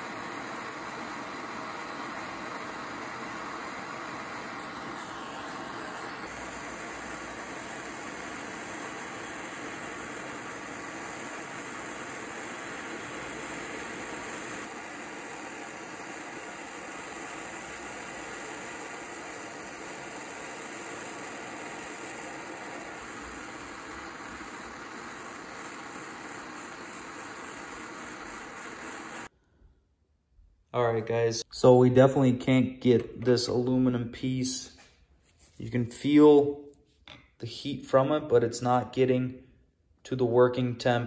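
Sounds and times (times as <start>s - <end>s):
gas torch hissing: 0.0s - 29.3s.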